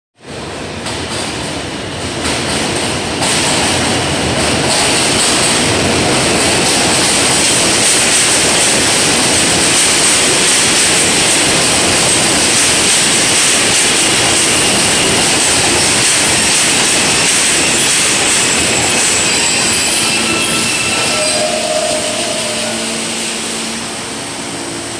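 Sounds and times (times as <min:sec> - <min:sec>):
subway train wheels rumbling on rail: 0:00.2 - 0:24.9
thin high whine: 0:16.3 - 0:24.9.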